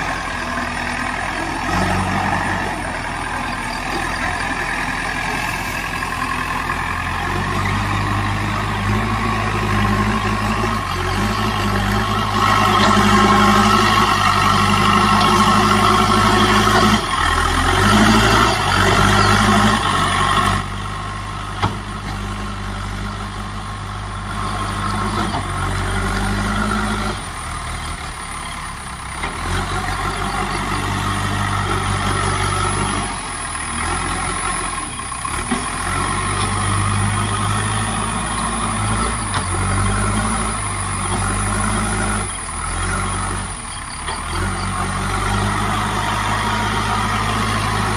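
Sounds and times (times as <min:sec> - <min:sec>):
diesel engine under load: 0:00.0 - 0:47.9.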